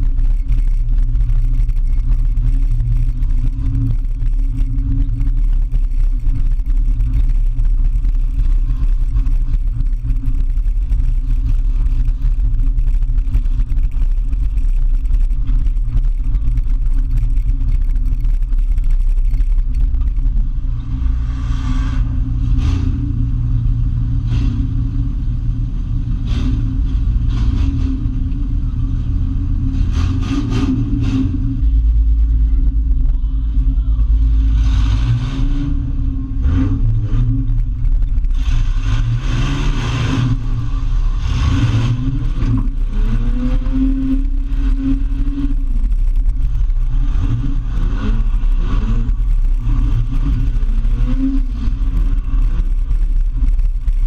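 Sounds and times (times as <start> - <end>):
car engine running loud: 0.0 - 54.0.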